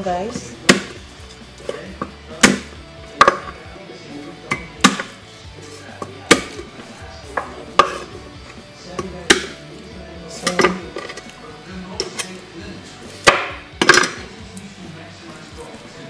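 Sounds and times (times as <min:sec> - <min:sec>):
palm slapping knife blade: 0:06.3 - 0:06.7.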